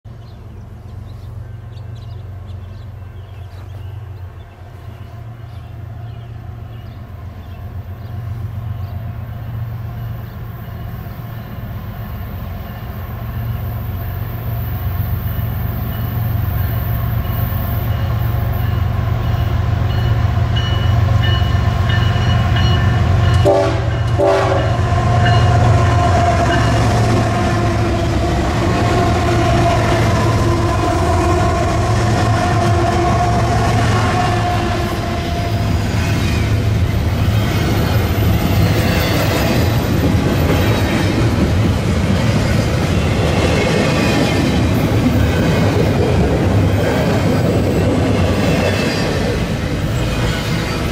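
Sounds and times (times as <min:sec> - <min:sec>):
diesel locomotives passing: 0:00.1 - 0:50.9
train horn blasts: 0:21.2 - 0:36.1.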